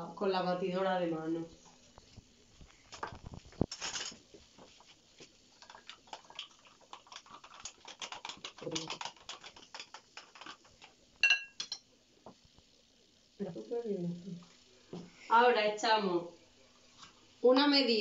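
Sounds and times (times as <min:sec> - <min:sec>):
spoon tapping bowl rim: 0:11.2 - 0:11.8.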